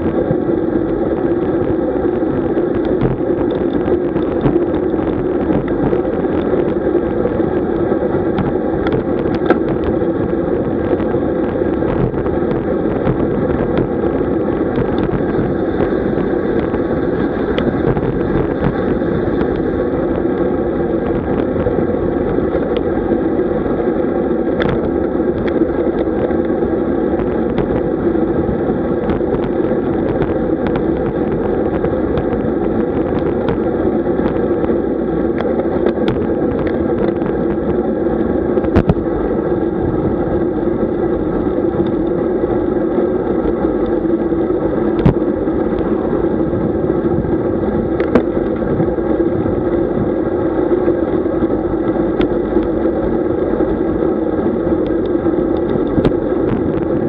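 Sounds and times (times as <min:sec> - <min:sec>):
vehicle hum and road noise: 0:00.0 - 0:57.0
sharp clicks and knocks: 0:08.3 - 0:09.9.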